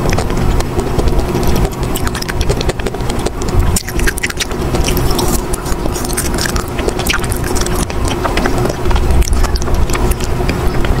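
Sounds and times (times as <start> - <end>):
biting and chewing ice cream bar: 0.0 - 11.0
low rumble: 0.0 - 11.0.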